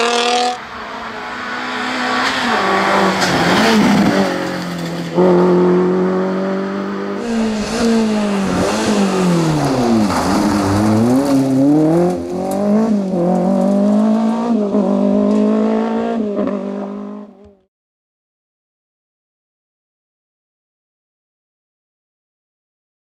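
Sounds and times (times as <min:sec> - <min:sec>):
rally car engines revving: 0:00.0 - 0:17.6.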